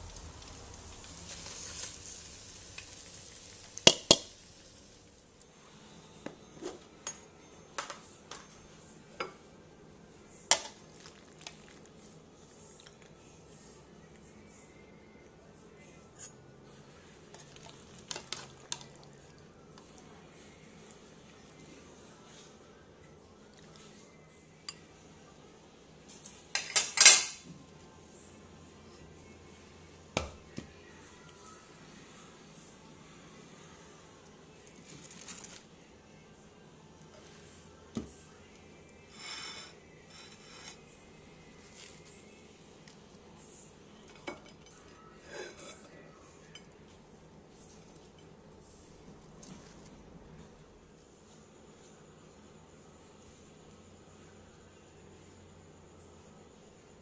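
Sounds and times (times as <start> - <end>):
utensils clinking against dishes: 6.2 - 8.6, 26.5 - 27.4, 44.0 - 46.8.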